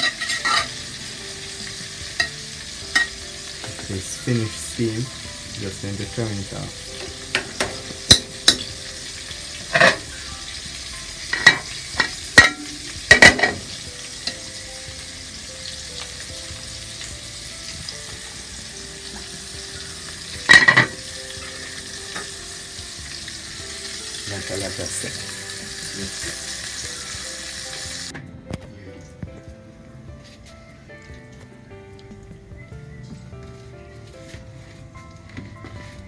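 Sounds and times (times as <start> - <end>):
ringing clanks of utensils: 0.0 - 0.8, 9.7 - 10.0, 11.3 - 13.6, 20.5 - 21.0
chicken sizzling in hot oil: 0.0 - 28.1.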